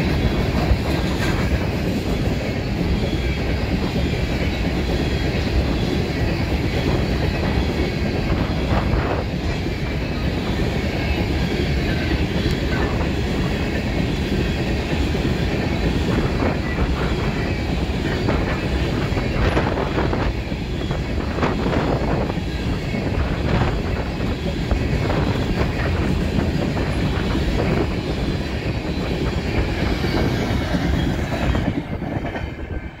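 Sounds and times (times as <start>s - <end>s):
train wheels rumbling on rails: 0.0s - 33.0s.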